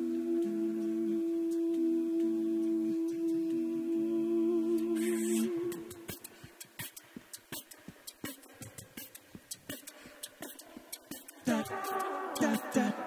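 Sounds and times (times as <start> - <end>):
a cappella voices holding a chord: 0.0 - 6.3, 11.1 - 13.0
beatboxing drum beat: 4.7 - 13.0.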